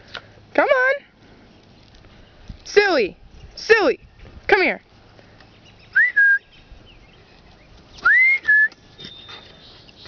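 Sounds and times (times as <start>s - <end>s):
person whistling for dog: 6.0s - 6.4s, 8.0s - 8.8s.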